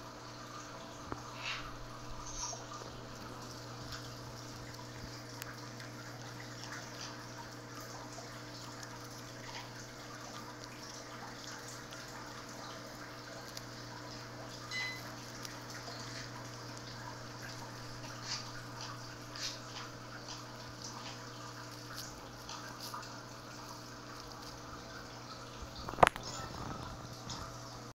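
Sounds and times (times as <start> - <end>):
low electrical hum: 0.0 - 27.9
cat chewing grass clicks: 2.2 - 27.6
short high tone: 14.7 - 15.0.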